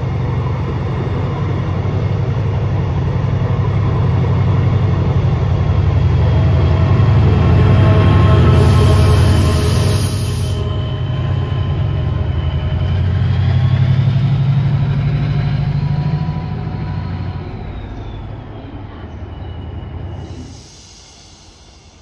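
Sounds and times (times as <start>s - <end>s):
diesel locomotive engine drone: 0.0s - 22.0s
faint high whine: 6.2s - 14.7s.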